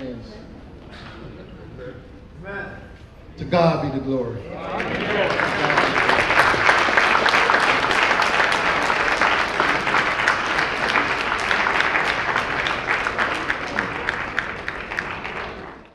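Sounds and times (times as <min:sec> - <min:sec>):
crowd applauding: 0:04.5 - 0:15.9.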